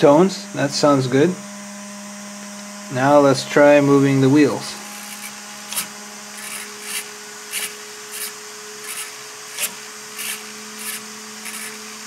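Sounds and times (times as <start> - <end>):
low electrical hum: 0.0 - 12.0
servo whirring: 4.8 - 12.0.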